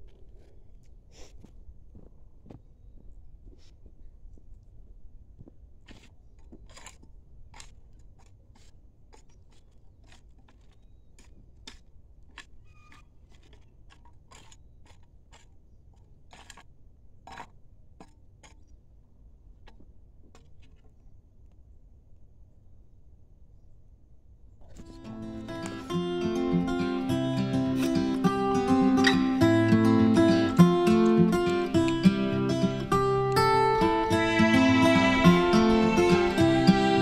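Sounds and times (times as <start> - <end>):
hoe scraping and chopping soil: 5.8 - 17.6, 24.7 - 37.0.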